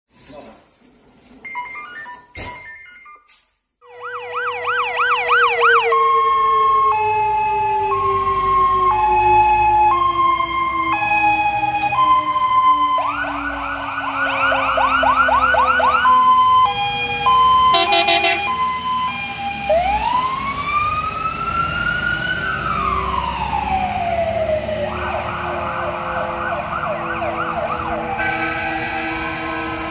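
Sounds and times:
fire engine siren: 3.8s - 29.9s
horn blast: 17.7s - 18.6s.

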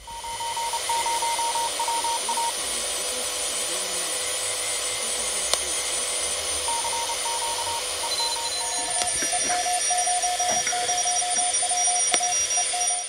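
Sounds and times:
morse code beeping: 0.0s - 2.8s, 6.6s - 13.0s
radio band hiss: 0.0s - 13.0s.

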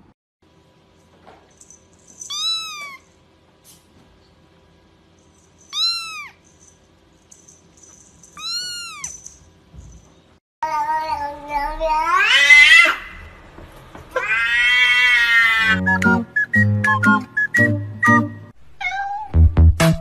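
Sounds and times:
kitten mewing: 2.3s - 3.0s, 5.7s - 6.4s, 8.4s - 9.2s.

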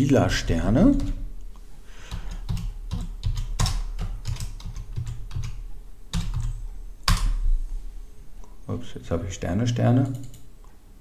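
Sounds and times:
computer keyboard typing: 0.7s - 1.3s, 2.1s - 7.4s, 10.0s - 10.5s.

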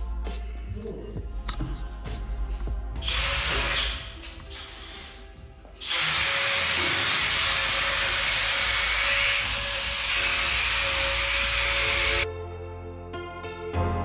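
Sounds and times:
soft music: 0.0s - 14.0s
power tool hissing and whining: 3.0s - 12.2s.

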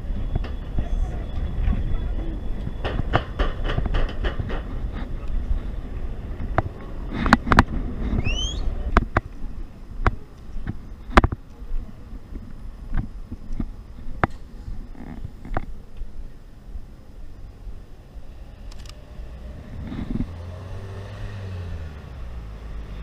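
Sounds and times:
sharp clicks and knocks: 2.6s - 5.4s
short rising chirp: 8.2s - 8.8s.

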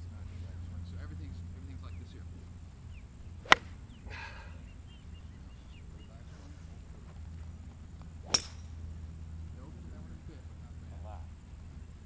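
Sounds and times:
golf club tapping ball: 3.4s - 3.8s, 8.0s - 8.7s.

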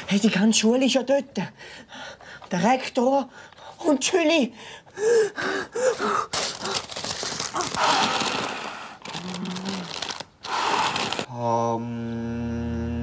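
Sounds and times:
rapid breathing into paper bag: 4.6s - 11.3s
paper bag rustling: 6.3s - 11.3s.

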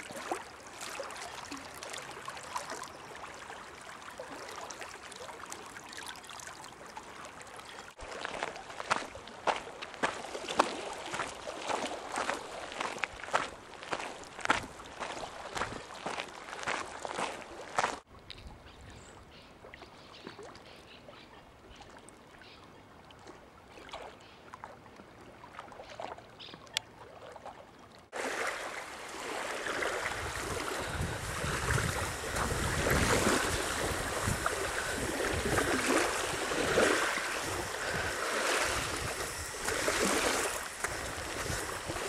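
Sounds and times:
small waves washing onto shore: 0.0s - 18.1s, 28.1s - 42.0s
wind rumbling on microphone: 29.8s - 42.0s.

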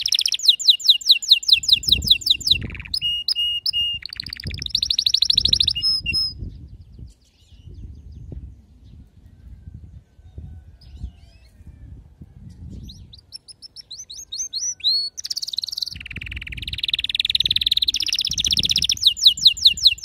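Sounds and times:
canary singing trills: 0.0s - 8.0s, 12.4s - 20.0s.

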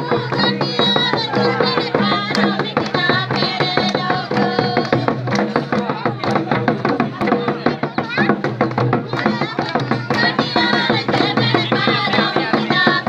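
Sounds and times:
fast steady drumming: 0.0s - 13.0s.

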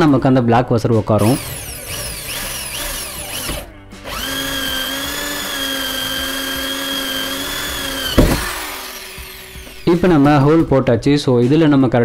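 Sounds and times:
electric drill boring plastic: 1.2s - 10.4s.

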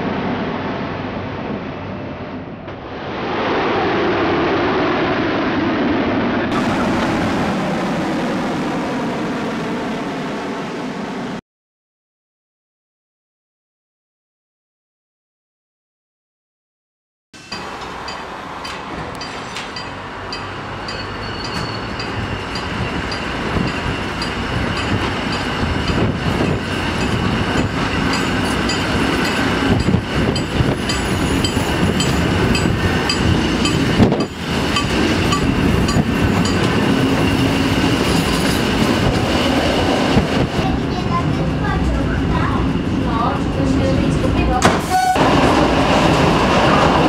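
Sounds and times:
electric train accelerating: 6.5s - 11.4s, 17.4s - 47.0s.

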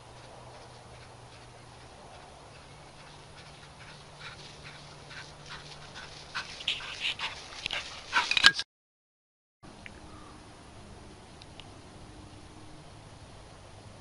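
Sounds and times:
dog running through grass: 0.0s - 8.4s.

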